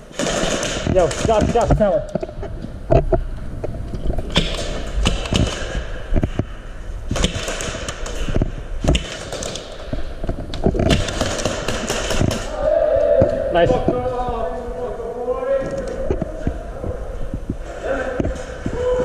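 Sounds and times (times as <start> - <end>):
pellets striking walls and barrels: 0.0 - 2.0, 7.1 - 12.6
airsoft gunfire: 0.1 - 1.7, 4.3 - 6.0, 7.1 - 9.9, 10.8 - 12.5.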